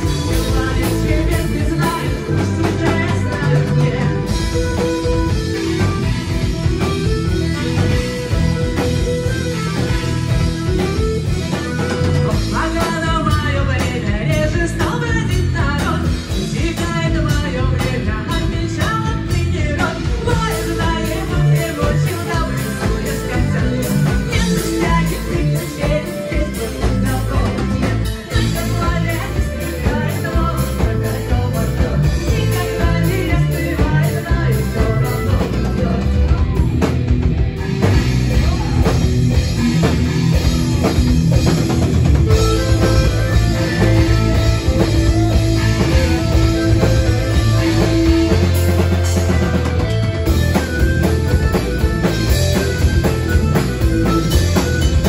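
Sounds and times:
woman singing: 0.0 - 4.9, 11.9 - 36.7
bass guitar: 0.0 - 55.0
drums: 0.0 - 55.0
electric guitar: 0.0 - 55.0
rock band playing: 0.0 - 55.0.

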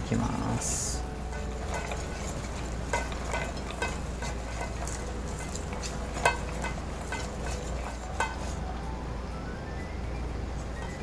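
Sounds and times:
whisk beating batter in metal bowl: 0.4 - 8.6.

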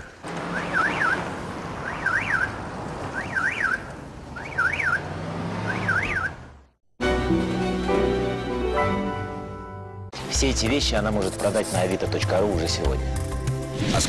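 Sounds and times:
street noise: 0.0 - 13.7
car alarm warbling: 0.4 - 6.5
music: 7.0 - 14.0.

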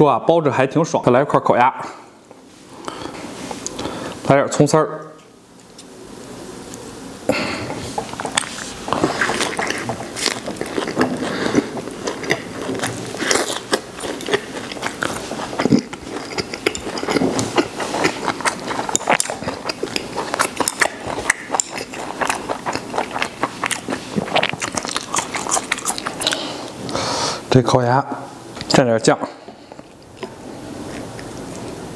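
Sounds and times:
close chewing of food: 7.3 - 27.0, 29.3 - 31.9.

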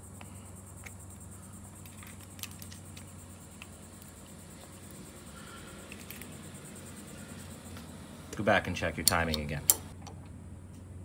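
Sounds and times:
steady low hum: 0.0 - 11.0
screwdriver clicks and taps: 9.0 - 10.2.

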